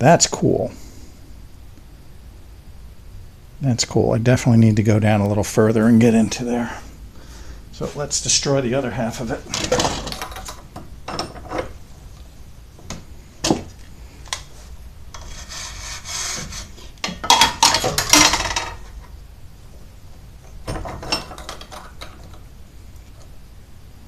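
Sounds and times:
handling clicks and knocks: 20.4 - 22.5.

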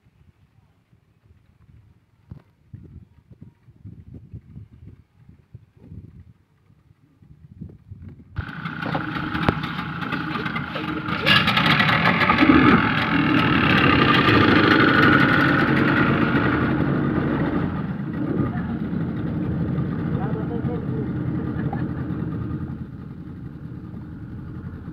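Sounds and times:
outboard motors running: 8.4 - 24.9.

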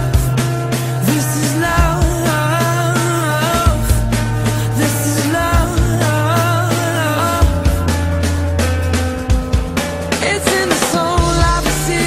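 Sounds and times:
rock song: 0.0 - 12.0.

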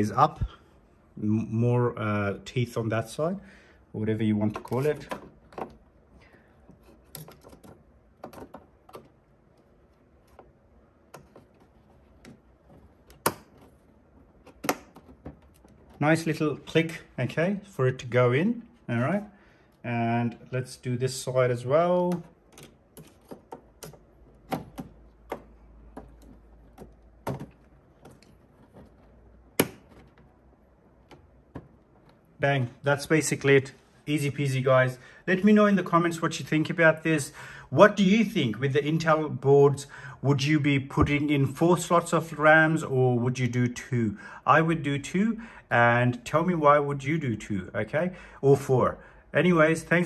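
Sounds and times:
plastic clicks and knocks: 6.7 - 16.0, 22.1 - 32.2
memory slot latch snapping: 13.0 - 13.8, 14.4 - 16.0, 29.5 - 30.3.

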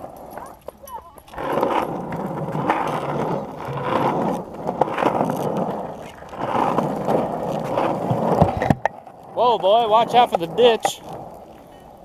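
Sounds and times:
skateboard wheels rolling on asphalt: 0.0 - 12.0.

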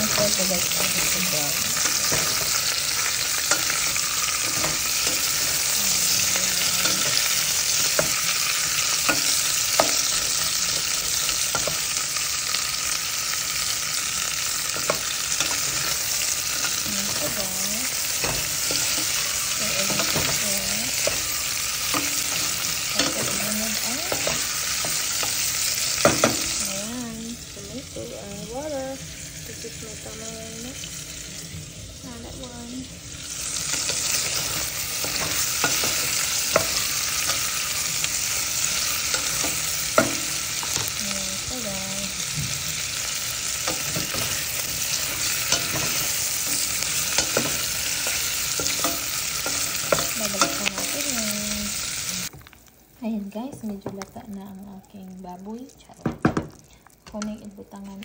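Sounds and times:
meat sizzling in a pot: 0.0 - 58.0.

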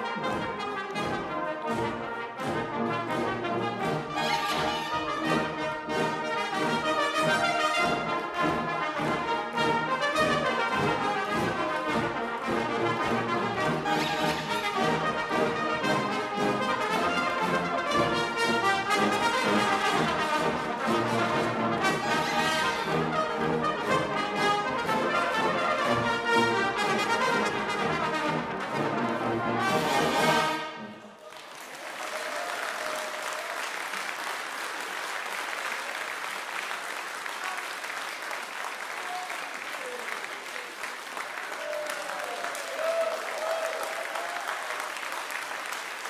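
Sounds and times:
brass band playing: 0.0 - 31.2
audience applause: 31.2 - 46.0.

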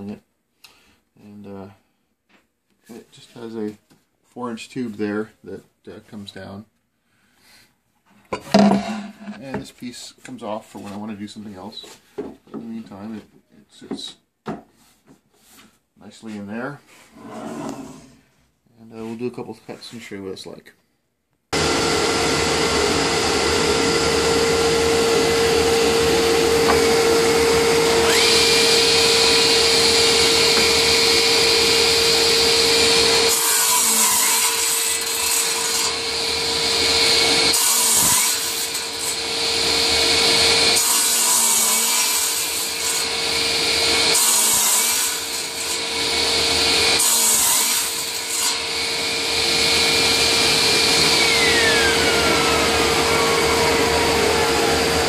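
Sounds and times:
dust collector hum: 21.6 - 33.4, 48.7 - 55.0
saw motor whine: 21.6 - 33.4, 48.5 - 55.0
saw crosscutting wood: 21.6 - 55.0.

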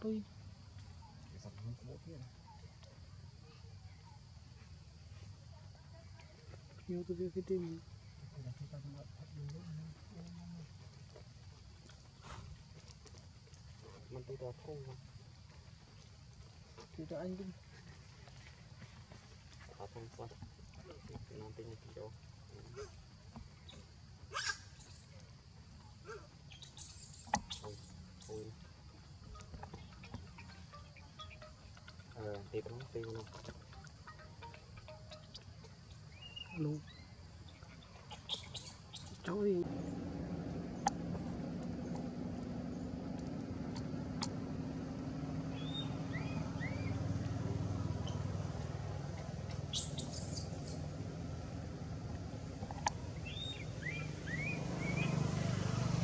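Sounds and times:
vehicle engine rumble: 0.0 - 56.0
infant monkey squealing: 24.3 - 25.1, 26.1 - 28.4, 37.6 - 39.4, 49.5 - 50.9
rising-and-falling chirps: 26.5 - 32.6, 33.5 - 47.1, 49.1 - 51.0, 53.0 - 55.2.

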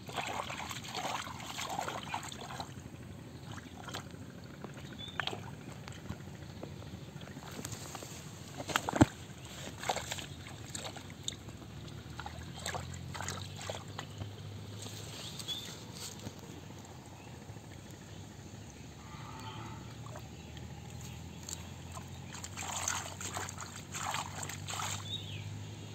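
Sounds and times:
hands splashing in muddy water: 0.0 - 2.8, 8.5 - 14.2, 21.4 - 25.3
bird chirping: 13.9 - 22.4, 25.0 - 25.5.

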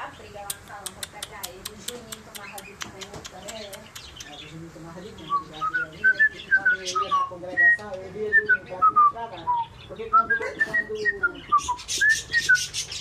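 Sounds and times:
cage birds chirping: 0.0 - 13.0
cockatiel whistling: 5.3 - 13.0.

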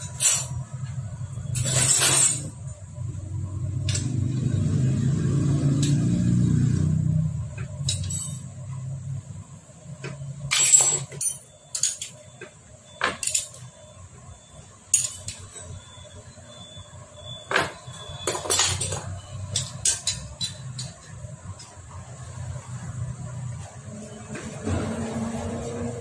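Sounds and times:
hand tools clinking on metal: 14.9 - 15.7.

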